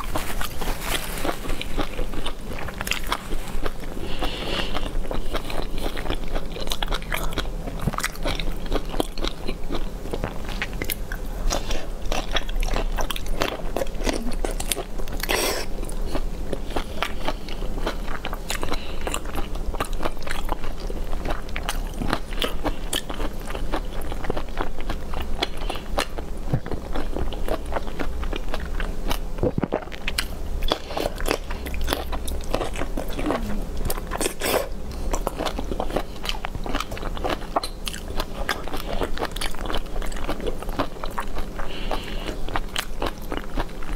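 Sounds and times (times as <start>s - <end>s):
person chewing and crunching: 0.0s - 43.9s.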